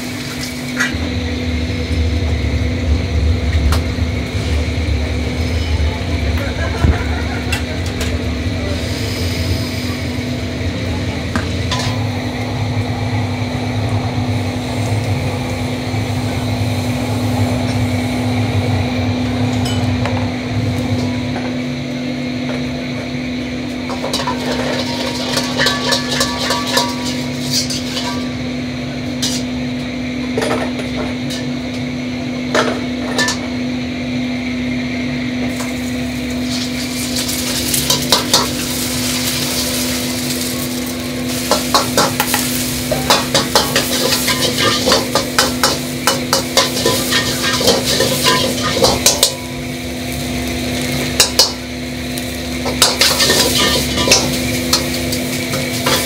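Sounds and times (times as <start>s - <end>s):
gas burners and ventilation hum: 0.0s - 56.0s
metal ladles clinking against woks: 23.9s - 28.4s, 36.4s - 49.4s, 52.6s - 56.0s.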